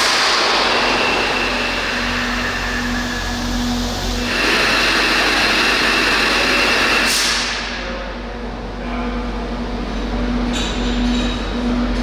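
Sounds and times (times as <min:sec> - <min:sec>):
locomotive rushing with high whine: 0:00.0 - 0:12.0.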